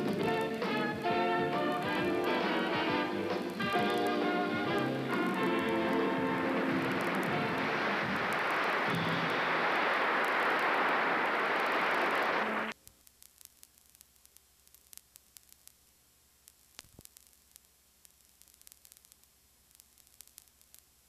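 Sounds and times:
tape hiss and crackling clicks: 0.0s - 21.0s
loud rushing noise: 6.3s - 12.7s.

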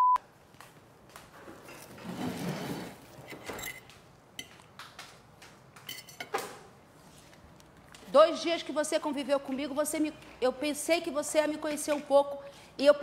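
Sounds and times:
dishes and utensils clinking: 3.2s - 4.7s, 5.9s - 6.5s.

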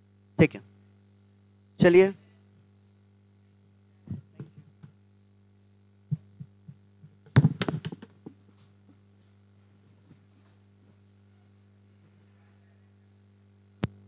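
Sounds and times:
electrical hum: 0.0s - 14.0s
knocks and taps: 6.1s - 8.4s.

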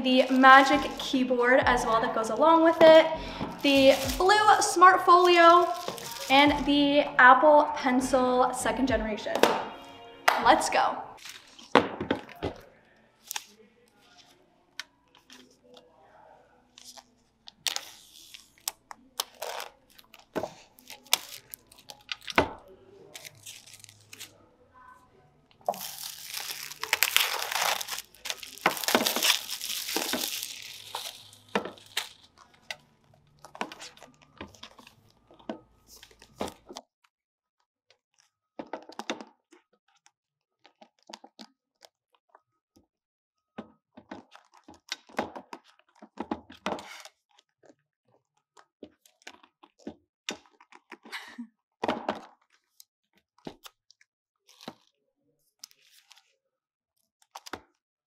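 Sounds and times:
plastic wrap crinkling: 0.0s - 6.6s, 11.2s - 12.4s, 16.8s - 24.4s, 25.6s - 36.8s.

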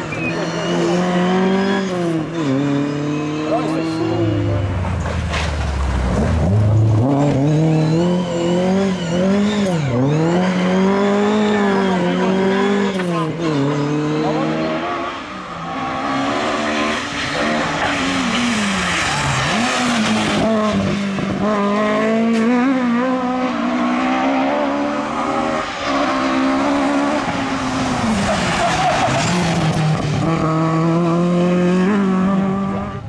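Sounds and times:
rally car engine revving: 0.0s - 33.0s.

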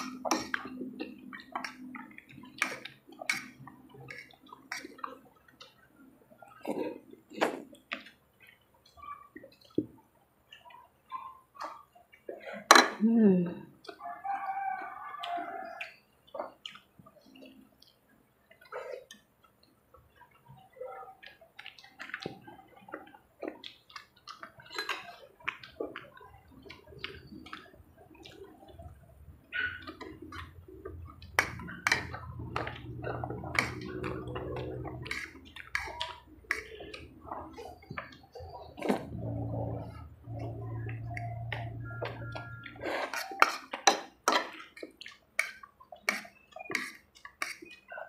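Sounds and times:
wet chewing and lip-smacking: 0.0s - 12.4s, 13.8s - 48.0s
low steady hum: 28.6s - 43.1s.

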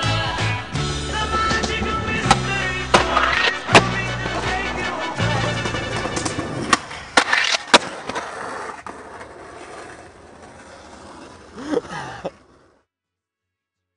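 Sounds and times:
skateboard wheels rolling: 0.2s - 12.9s
skateboard cracking on concrete: 1.3s - 4.5s, 5.2s - 12.8s.

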